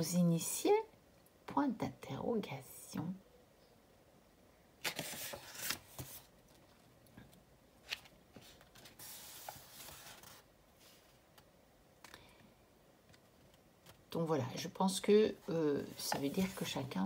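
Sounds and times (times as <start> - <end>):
paper pages rustling: 4.8 - 6.8, 7.8 - 11.5, 15.8 - 17.0.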